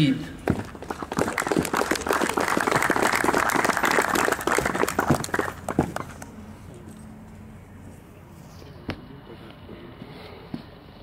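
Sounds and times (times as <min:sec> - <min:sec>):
audience applause: 0:00.7 - 0:06.1.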